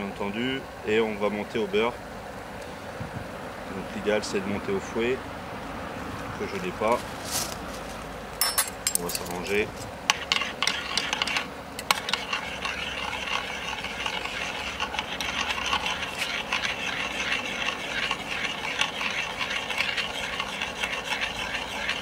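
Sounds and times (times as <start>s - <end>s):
metal spoon scraping saucepan: 8.4s - 22.0s.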